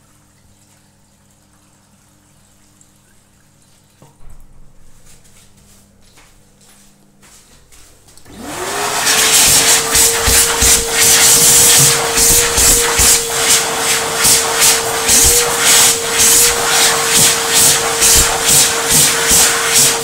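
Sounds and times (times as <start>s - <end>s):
hand dryer motor whine: 8.2s - 20.0s.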